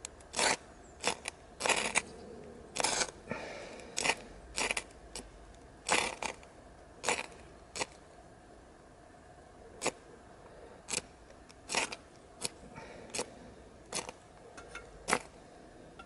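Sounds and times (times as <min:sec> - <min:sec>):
striker rasping on ferro rod: 0:00.3 - 0:02.1, 0:02.8 - 0:03.2, 0:05.9 - 0:06.4, 0:11.7 - 0:12.5.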